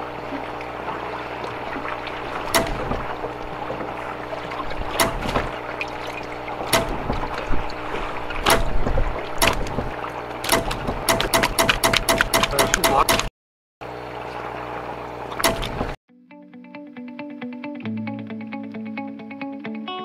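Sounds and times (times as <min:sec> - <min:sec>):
fish splashing and flopping: 0:00.0 - 0:12.9
steady hum: 0:00.0 - 0:16.0
knocks: 0:02.5 - 0:03.9.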